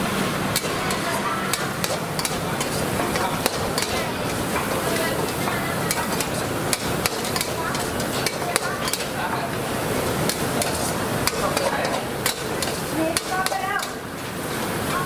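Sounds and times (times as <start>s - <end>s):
frying sizzle: 0.0s - 15.0s
metal utensils clacking on pan: 0.5s - 15.0s.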